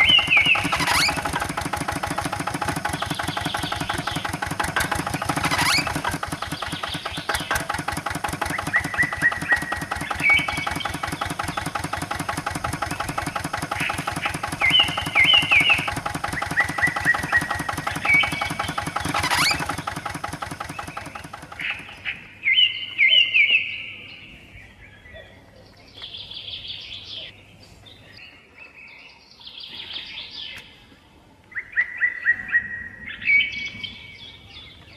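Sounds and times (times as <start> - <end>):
small engine chugging: 0.0 - 22.4
birds chirping: 0.0 - 34.9.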